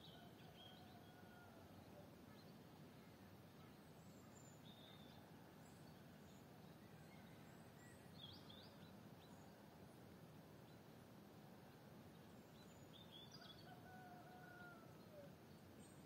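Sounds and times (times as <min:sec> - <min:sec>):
faint bird chirps: 0:00.0 - 0:09.7.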